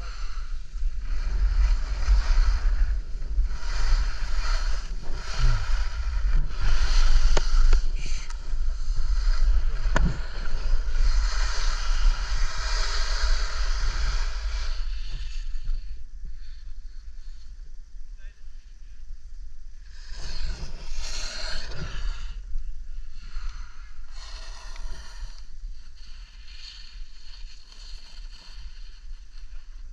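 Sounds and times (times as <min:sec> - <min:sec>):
skis scraping on snow: 0:00.0 - 0:15.4, 0:25.7 - 0:29.9
wind on microphone: 0:00.0 - 0:29.9.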